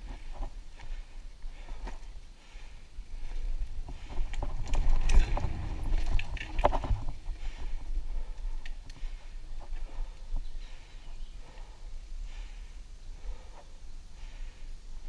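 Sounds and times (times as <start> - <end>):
tyres on dirt: 0.0 - 10.8
bike rattles and clicks: 0.0 - 12.6
wind buffeting microphone: 3.0 - 14.0.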